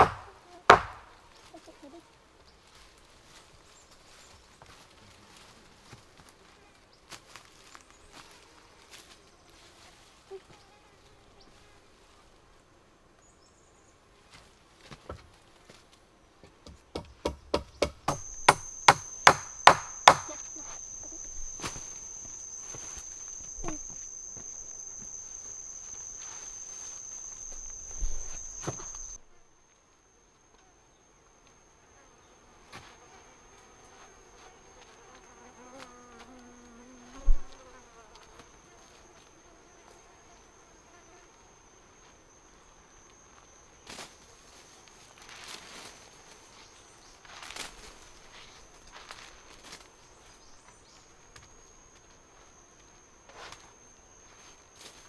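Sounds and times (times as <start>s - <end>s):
machete chopping bamboo: 0.0s - 1.2s, 16.7s - 20.5s
high-pitched insect buzz: 17.6s - 29.4s, 30.2s - 55.0s
thump: 27.5s - 29.1s.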